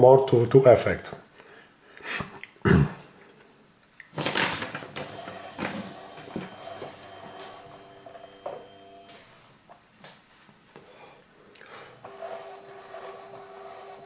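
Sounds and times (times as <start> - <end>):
person clearing throat: 2.6 - 3.1
printer mechanism humming: 4.2 - 9.3, 11.9 - 14.0.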